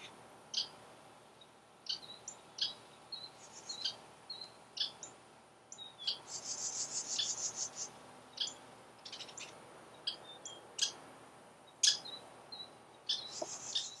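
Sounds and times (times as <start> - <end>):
birds calling sharp kip notes: 11.7 - 14.0.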